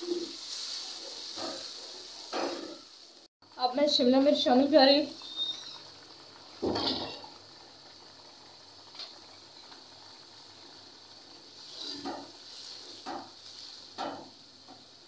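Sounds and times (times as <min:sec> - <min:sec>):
curry bubbling faintly: 0:03.4 - 0:13.8.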